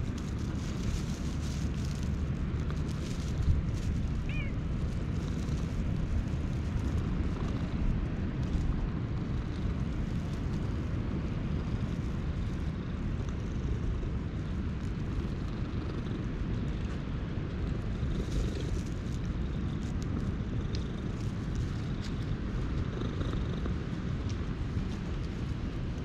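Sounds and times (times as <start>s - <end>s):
faint rustling: 0.0s - 14.0s
cat purring: 0.0s - 26.0s.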